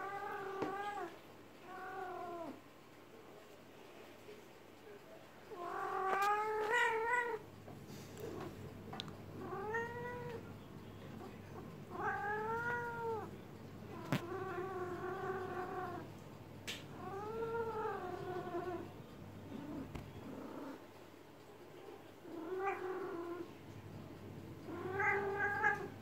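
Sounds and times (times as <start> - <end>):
cat yowling: 9.5 - 10.4, 24.7 - 25.9.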